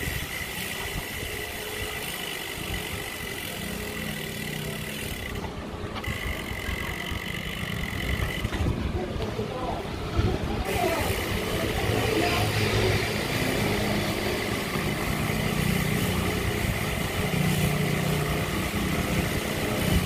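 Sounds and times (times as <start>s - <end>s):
wind rumbling on microphone: 0.0s - 3.4s, 5.3s - 15.0s.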